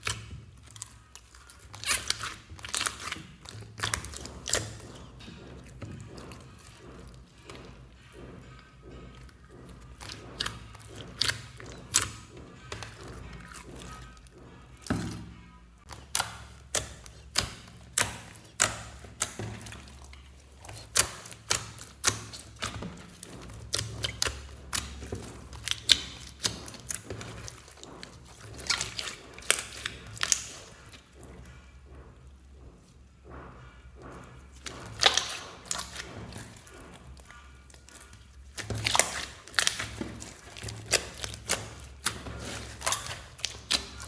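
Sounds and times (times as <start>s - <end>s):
slime squeezed with wet pops: 15.9s - 31.0s, 34.6s - 44.0s.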